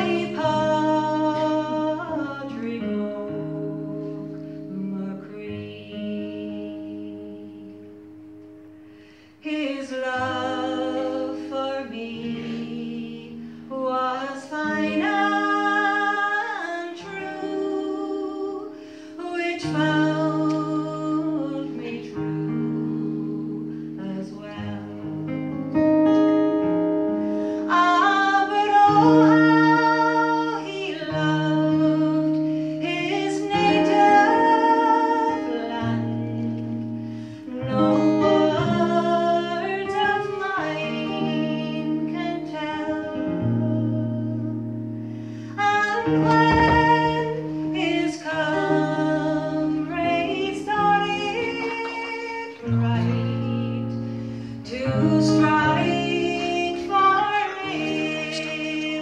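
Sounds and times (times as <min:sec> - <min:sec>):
woman singing a slow ballad: 0:00.0 - 0:08.4, 0:09.0 - 0:59.0
acoustic guitar: 0:00.0 - 0:59.0.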